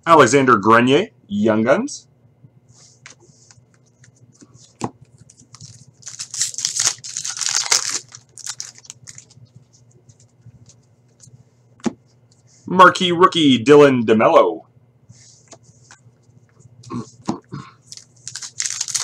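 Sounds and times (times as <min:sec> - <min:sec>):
wrapper and cards rustling: 0:03.9 - 0:11.4, 0:17.8 - 0:19.0
foil card pack tearing: 0:05.5 - 0:09.4, 0:17.9 - 0:19.0.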